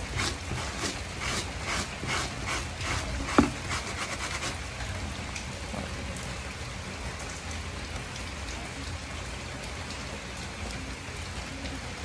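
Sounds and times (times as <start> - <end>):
scrub brush rubbing wet fabric: 0.0 - 4.6
dripping patter: 0.0 - 12.0.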